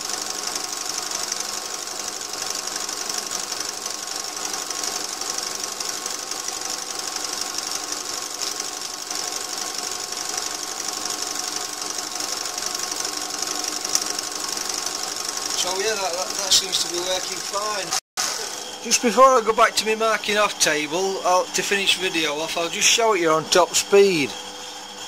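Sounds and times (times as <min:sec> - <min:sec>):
fast even ticking of sparks: 0:00.0 - 0:17.9
metal lathe running: 0:00.0 - 0:25.0.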